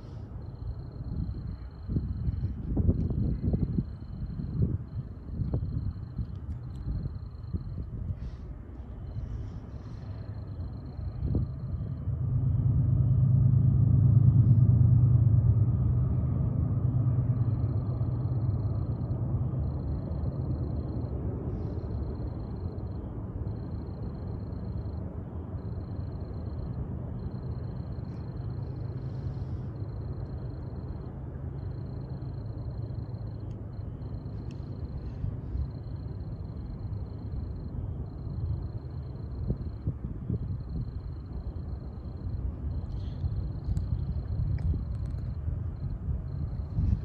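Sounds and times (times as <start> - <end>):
freight train cars rumbling past: 8.2 - 24.7.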